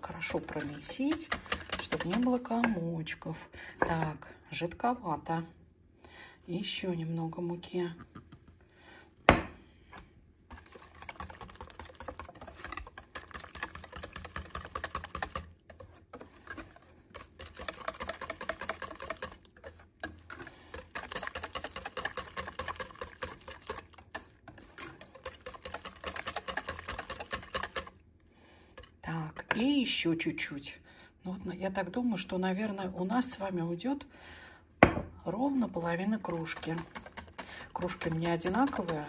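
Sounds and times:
whisk clicking against metal pan: 0.1s - 2.7s, 10.5s - 28.0s, 36.2s - 39.0s.

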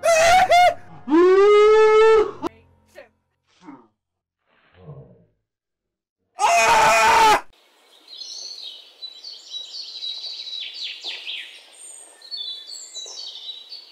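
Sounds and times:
birds chirping and singing: 7.7s - 13.9s.

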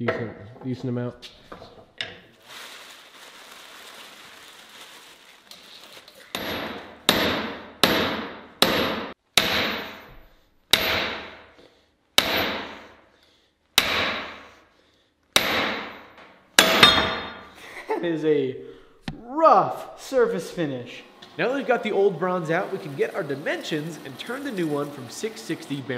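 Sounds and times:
soft rustling: 2.3s - 6.3s
hammer striking steel: 6.3s - 10.1s, 10.7s - 11.5s, 12.2s - 12.8s, 13.8s - 14.4s, 15.4s - 15.9s, 16.6s - 17.6s.

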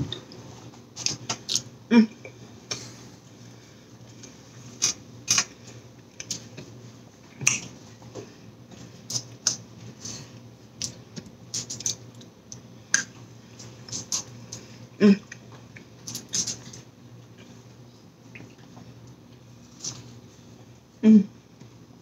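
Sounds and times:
faint steady hum: 0.0s - 22.0s
sharp clicks and mouth smacks: 7.4s - 7.7s, 10.8s - 13.2s.

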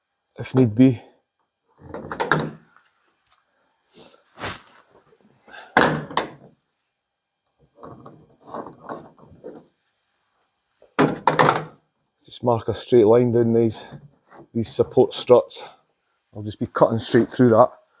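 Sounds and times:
knocks and scrapes on sheet metal: 7.8s - 9.7s.

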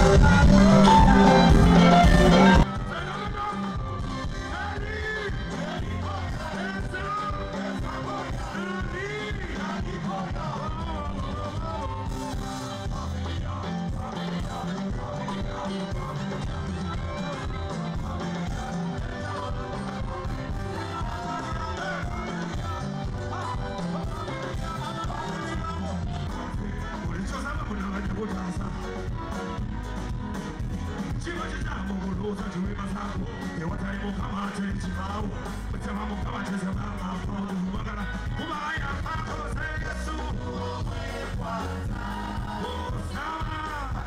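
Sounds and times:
person singing: 0.0s - 29.4s
live band music: 0.0s - 44.0s
repeating bass line: 0.0s - 44.0s.

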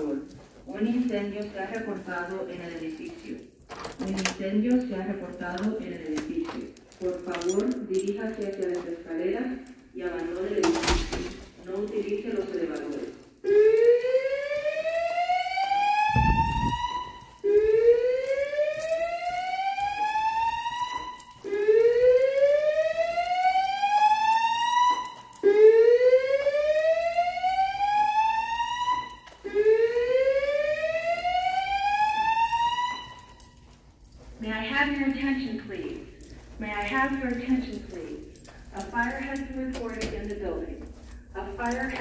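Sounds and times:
fire alarm whoop tone: 13.4s - 33.7s.

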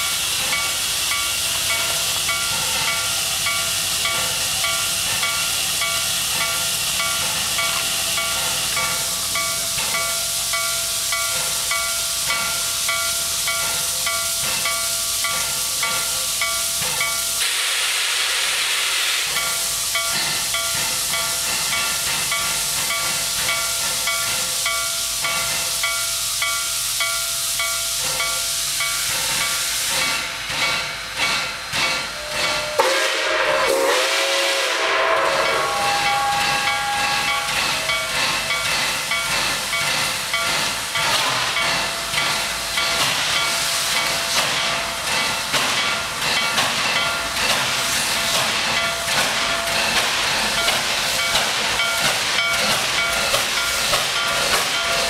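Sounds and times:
locomotive bell ringing: 0.0s - 17.4s, 19.3s - 34.0s, 34.9s - 55.0s
steam hissing: 0.0s - 55.0s
steam locomotive exhaust beats: 0.0s - 55.0s
steam whistle: 32.2s - 37.6s.

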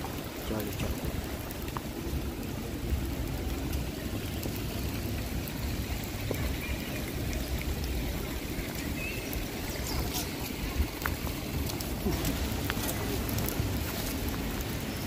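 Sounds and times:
constant low rumble: 0.0s - 15.0s
rain on wet paving: 0.0s - 15.0s.

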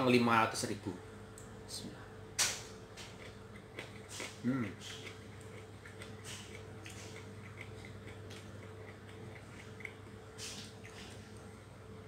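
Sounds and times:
low electrical hum: 0.0s - 12.0s
person chewing food: 2.9s - 11.5s.

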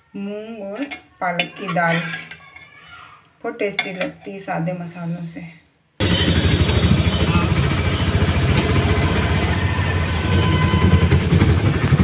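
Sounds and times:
auto-rickshaw engine rumbling: 6.0s - 12.0s
road noise: 6.0s - 12.0s.

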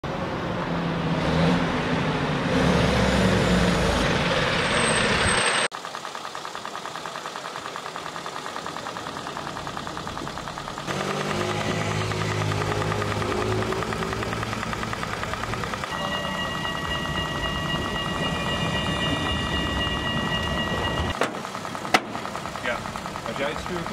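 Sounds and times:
fire engine driving: 0.0s - 23.9s
engine idling: 4.0s - 23.9s
fast even ticking: 5.7s - 23.9s.

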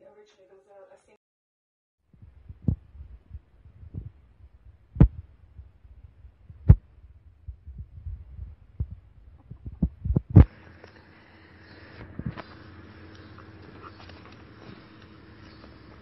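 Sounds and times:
low rumble: 2.2s - 15.1s
dull thumps: 4.9s - 5.7s.

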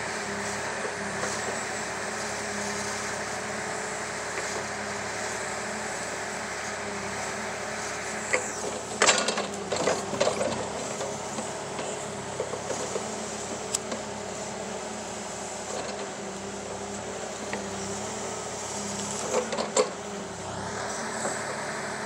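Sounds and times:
excavator engine running: 0.0s - 22.0s
hydraulic breaker splitting wood: 8.2s - 14.3s.

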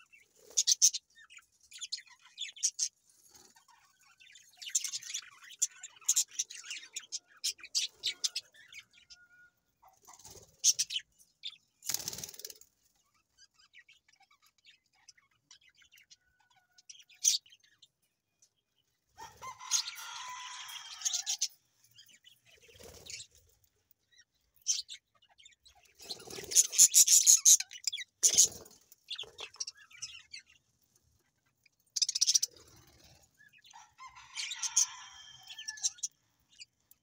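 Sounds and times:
budgerigars chirping: 0.0s - 12.4s, 19.4s - 23.3s, 24.6s - 30.5s, 31.8s - 36.8s
wings flapping: 11.8s - 12.7s.

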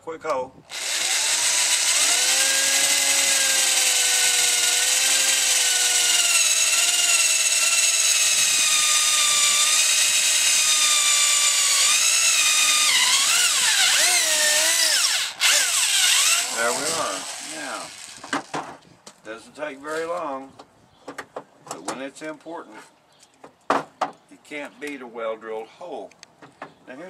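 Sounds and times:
electric drill boring into wood: 0.7s - 18.6s.

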